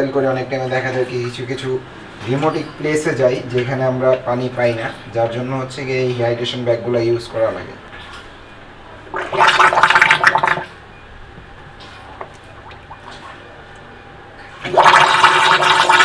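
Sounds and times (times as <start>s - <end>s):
water bubbling and gurgling: 9.1s - 10.7s, 11.8s - 16.0s.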